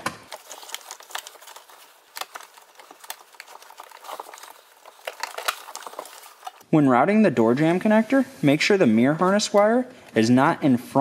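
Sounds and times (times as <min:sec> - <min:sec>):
wiring harness clicks and rustling: 0:00.3 - 0:06.6.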